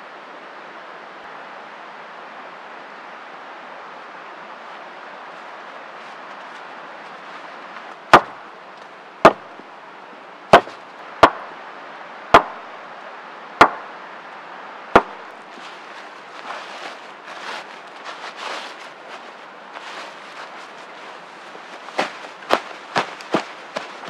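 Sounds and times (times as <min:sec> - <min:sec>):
rustling of wet leaves: 0:00.0 - 0:24.0
wood knocking on stake: 0:08.1 - 0:08.4, 0:09.2 - 0:09.6, 0:10.5 - 0:11.5, 0:12.3 - 0:12.6, 0:13.6 - 0:13.9, 0:15.0 - 0:15.2, 0:22.0 - 0:23.9.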